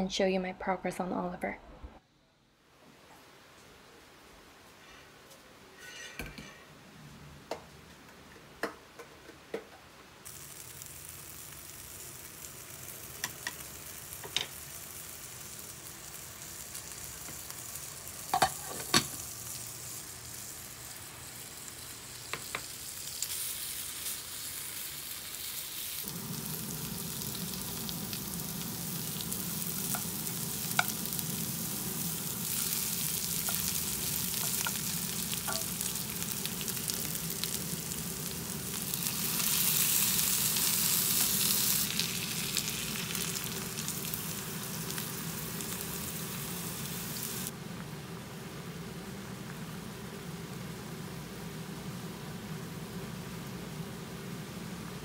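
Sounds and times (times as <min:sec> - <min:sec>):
onions and bacon sizzling: 0:10.2 - 0:48.1.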